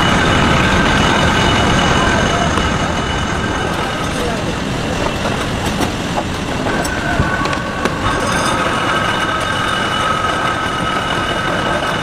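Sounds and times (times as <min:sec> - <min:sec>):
high whining tones: 0:00.0 - 0:12.0
machinery rumbling: 0:00.0 - 0:12.0.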